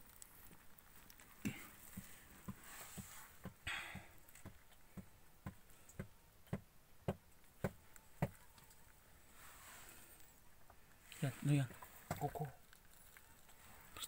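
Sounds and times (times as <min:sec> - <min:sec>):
faint evenly spaced knocks: 0:01.8 - 0:08.5.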